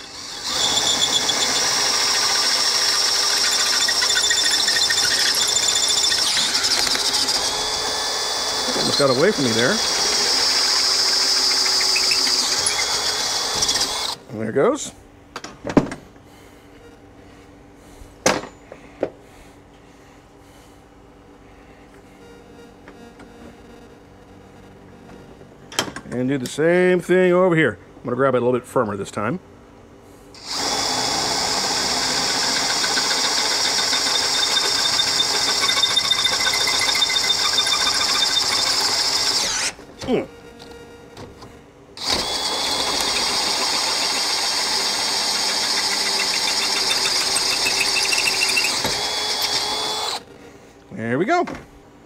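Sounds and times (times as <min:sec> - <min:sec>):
electric drill whining: 0:00.0 - 0:14.2, 0:30.4 - 0:39.8, 0:42.0 - 0:50.3
faint steady hum: 0:06.8 - 0:30.4, 0:35.4 - 0:42.0.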